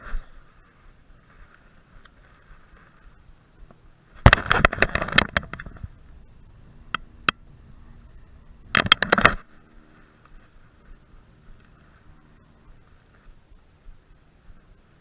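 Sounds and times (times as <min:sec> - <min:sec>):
sharp clicks: 0:08.7 - 0:09.5.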